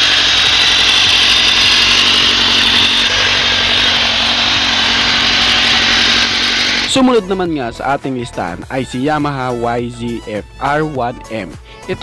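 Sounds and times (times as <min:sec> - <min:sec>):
motorcycle engine running: 0:00.0 - 0:07.2.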